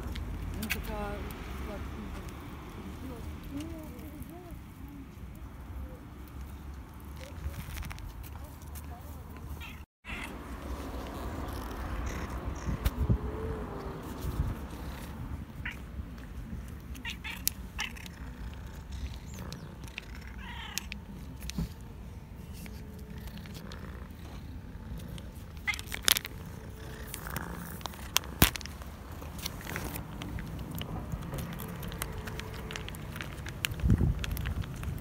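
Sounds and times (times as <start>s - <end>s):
cat meowing: 9.6s - 10.4s.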